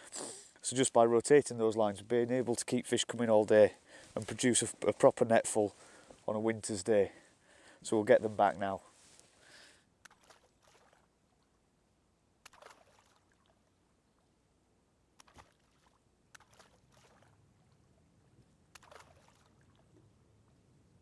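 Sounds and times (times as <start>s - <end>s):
lake water sloshing and splashing: 10.0s - 11.6s, 12.4s - 14.4s, 15.2s - 20.2s.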